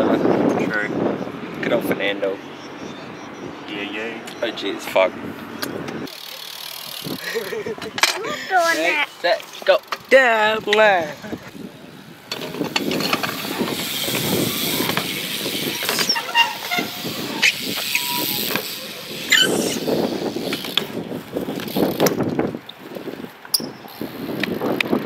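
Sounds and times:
bike clicks and knocks: 5.6 - 8.3, 12.3 - 19.1, 20.4 - 22.8, 23.4 - 23.8
bike tyres rolling on concrete: 6.0 - 25.0.

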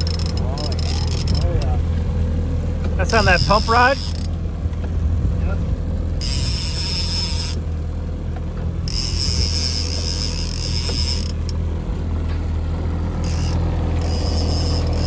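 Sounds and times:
fishing reel whirring: 0.0 - 1.7, 3.2 - 4.3, 6.2 - 7.6, 8.8 - 11.6, 13.2 - 15.0
boat engine droning: 0.0 - 15.0.

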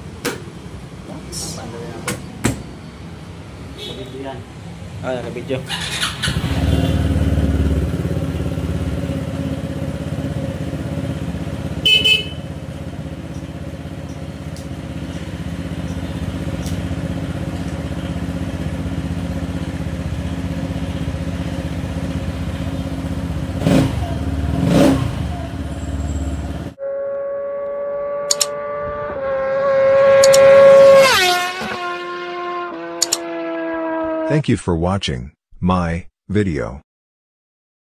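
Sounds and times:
scooter engine idling: 5.7 - 26.5.

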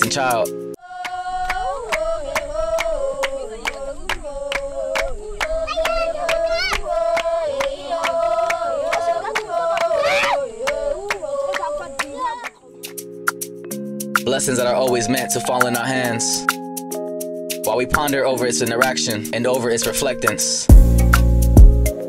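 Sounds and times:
women singing a chant: 0.8 - 12.8
fast handclapping: 1.0 - 13.0.

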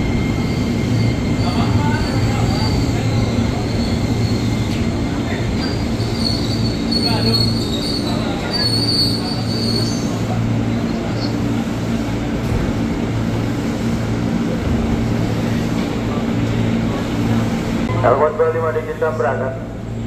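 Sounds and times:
low train hum: 0.0 - 20.0
high brake squeal: 5.6 - 10.2.

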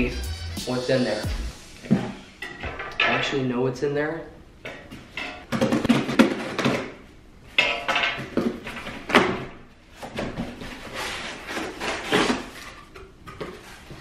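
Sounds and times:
cardboard scraping and ripping: 10.0 - 12.9
packing tape slitting: 10.8 - 13.9.

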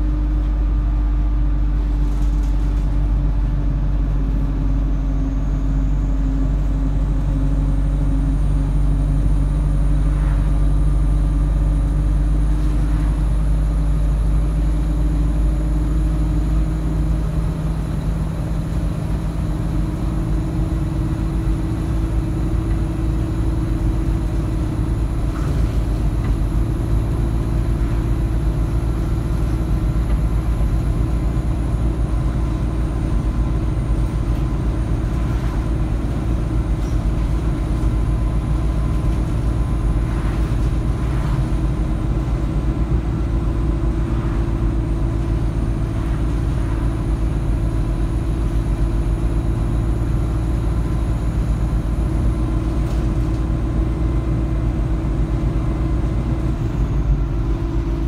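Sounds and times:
bus diesel engine droning: 0.0 - 58.0.

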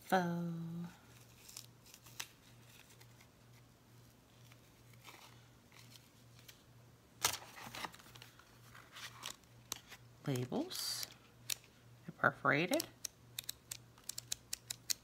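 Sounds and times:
paper packaging rustling and crinkling: 1.0 - 11.2.

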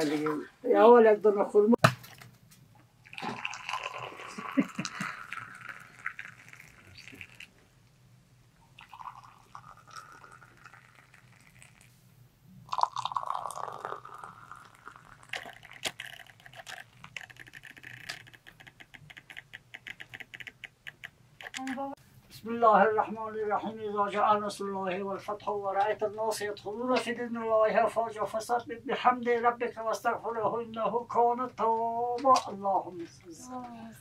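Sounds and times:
tea pouring into glass cups: 3.0 - 7.6, 8.7 - 12.0, 12.6 - 20.4.

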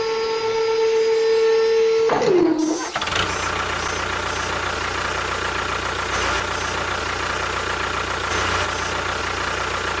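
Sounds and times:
steady engine whine: 0.0 - 10.0
tractor engine chugging: 2.5 - 10.0.

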